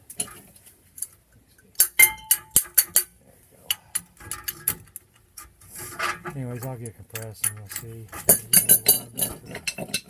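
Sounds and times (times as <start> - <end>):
metal tool clinks and clicks: 7.2 - 10.0.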